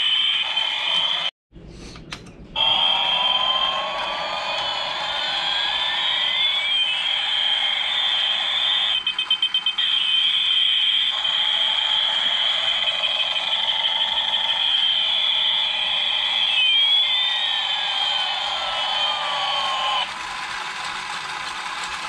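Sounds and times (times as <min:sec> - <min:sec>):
shrill electronic siren: 0:02.6 - 0:20.1
electronic beeps: 0:05.3 - 0:20.0.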